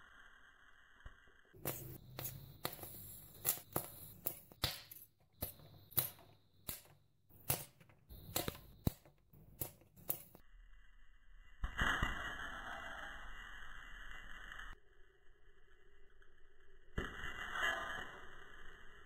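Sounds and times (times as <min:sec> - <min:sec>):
popcorn popping: 0:01.6 - 0:10.4.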